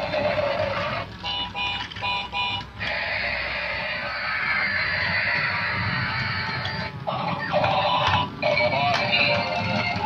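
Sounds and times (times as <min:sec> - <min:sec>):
plucked guitar music from toy: 0:00.0 - 0:10.0.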